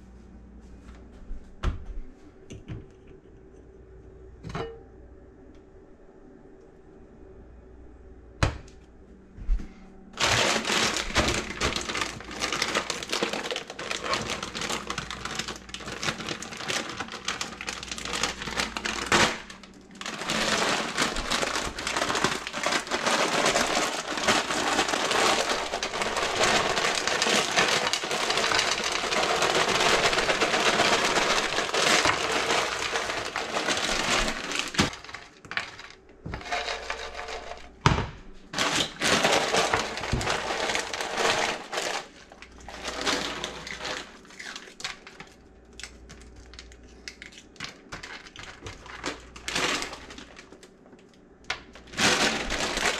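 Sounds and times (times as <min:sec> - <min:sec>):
plastic bag crinkling: 0:10.2 - 0:37.8, 0:38.4 - 0:52.9.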